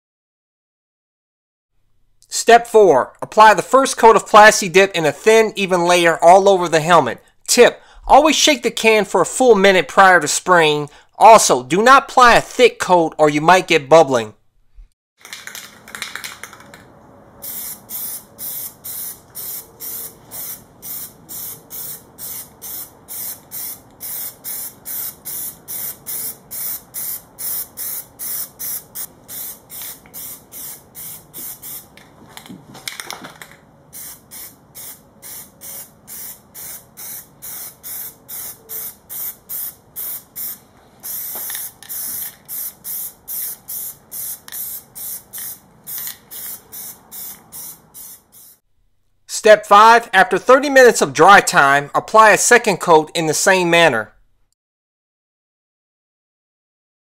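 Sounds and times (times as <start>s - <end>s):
aerosol can spraying in bursts: 17.4s - 31.9s, 34.0s - 48.6s.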